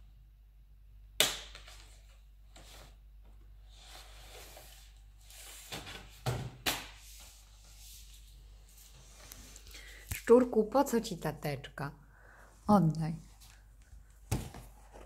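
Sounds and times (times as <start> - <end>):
plastic folder rustling and scraping: 1.6 - 3.0, 3.6 - 9.6, 14.4 - 15.0
book dragged across wooden table: 3.7 - 5.8.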